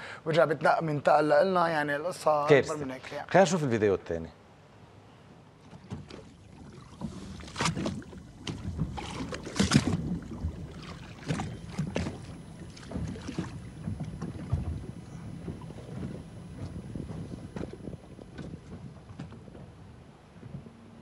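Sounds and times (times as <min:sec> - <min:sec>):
wind rumbling on microphone: 0:05.8 - 0:21.0.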